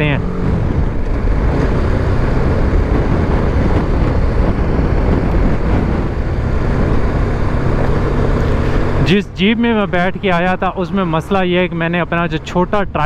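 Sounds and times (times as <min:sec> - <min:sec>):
wind on microphone: 0:00.0 - 0:09.1
motorcycle engine running: 0:00.0 - 0:13.0.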